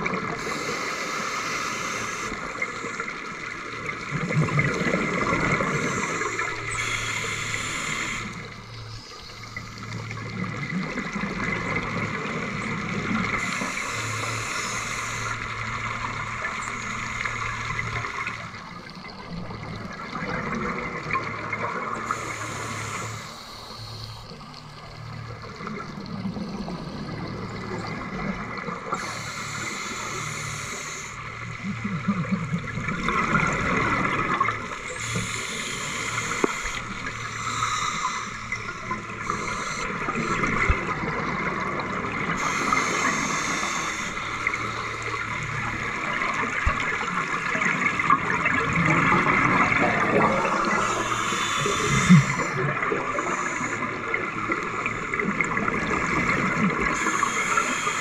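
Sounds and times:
exhaled bubbles gurgling: 0.0 - 58.0
underwater crackling hiss: 0.0 - 58.0.

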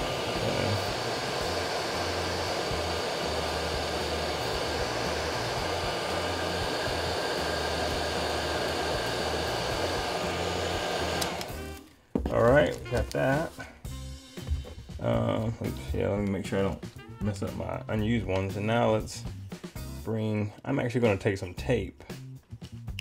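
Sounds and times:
heat gun blowing air: 0.0 - 11.9.

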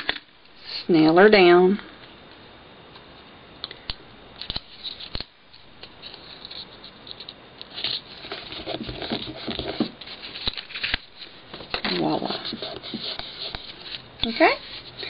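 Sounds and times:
paper rustling and rubbing: 5.8 - 15.0.

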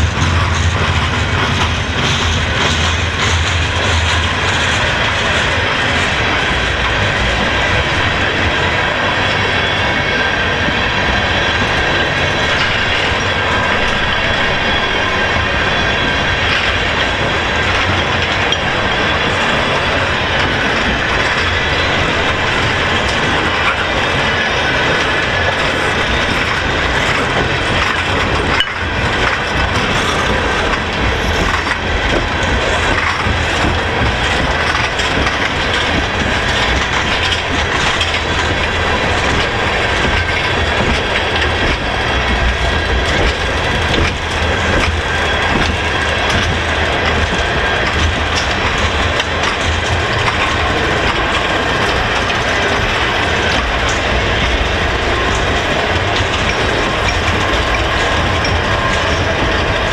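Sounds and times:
train wheels rumbling on rails: 0.0 - 59.9
faint high wheel squeal: 8.8 - 20.8.

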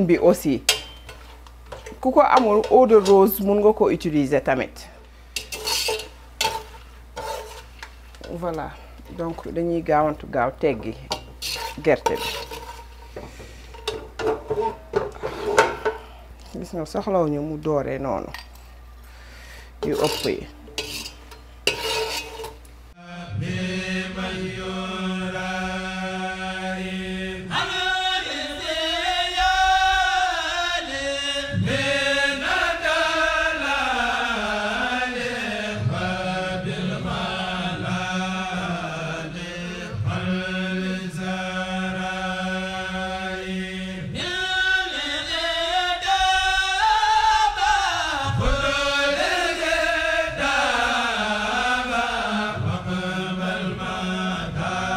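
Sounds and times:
metal skimmer clattering on pot: 0.7 - 3.4
chanted vocal music with drone: 22.9 - 54.9.

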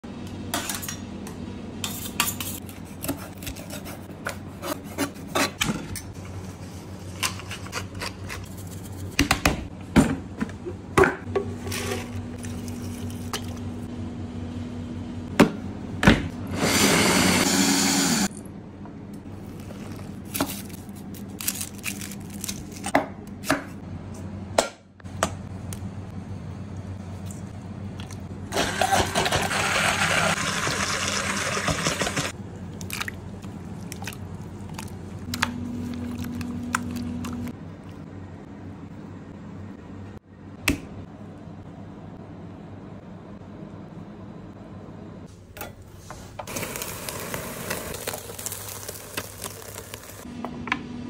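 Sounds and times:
blender running: 16.5 - 18.3, 28.5 - 32.3.

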